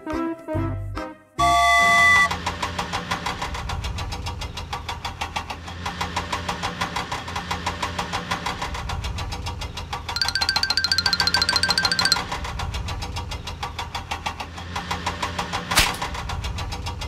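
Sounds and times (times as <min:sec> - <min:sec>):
cartoon engine chugging: 0:10.2 - 0:12.2.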